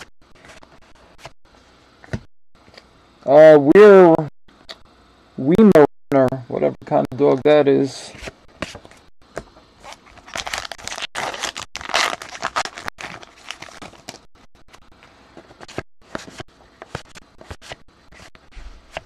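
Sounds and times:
wrapper tearing and crinkling: 9.8s - 14.2s.

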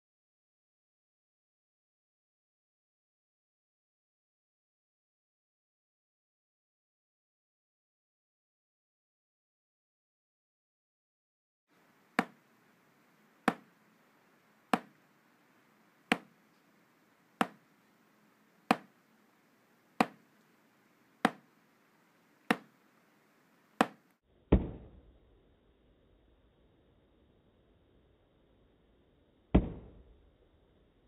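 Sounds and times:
drumstick tapping practice pad: 12.1s - 12.4s, 13.5s - 13.7s, 14.7s - 15.0s, 16.1s - 16.3s, 17.4s - 17.6s, 18.7s - 19.0s, 20.0s - 20.2s, 21.2s - 21.5s, 22.5s - 22.7s, 23.8s - 24.1s.

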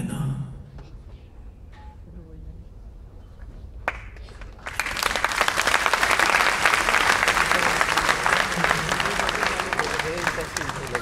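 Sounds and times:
audience applauding: 3.8s - 11.0s
lone clap: 3.8s - 11.0s.

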